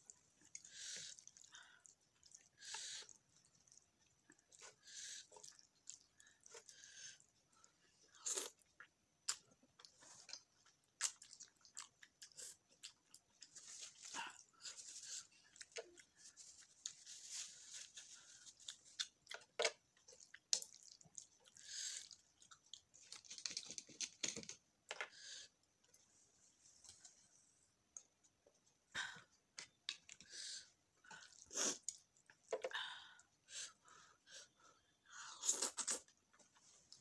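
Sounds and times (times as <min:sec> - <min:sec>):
wet chewing noises: 0:18.3 - 0:23.0.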